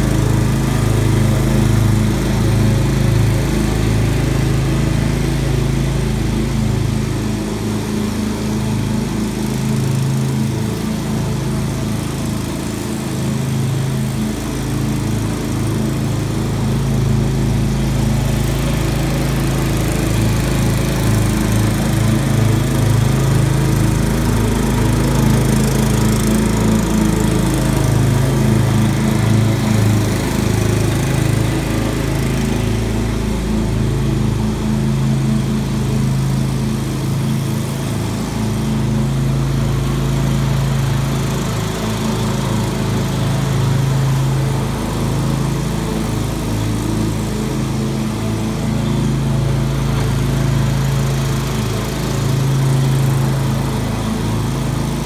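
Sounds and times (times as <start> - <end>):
lawn mower engine running: 0.0 - 55.0.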